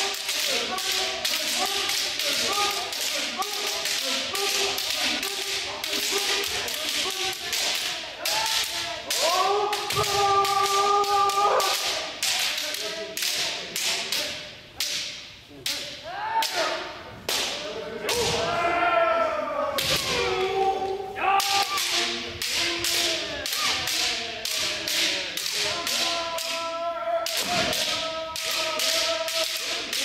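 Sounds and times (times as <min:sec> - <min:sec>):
kiai shouts: 0:00.0 - 0:12.2, 0:16.0 - 0:17.0, 0:18.1 - 0:24.1.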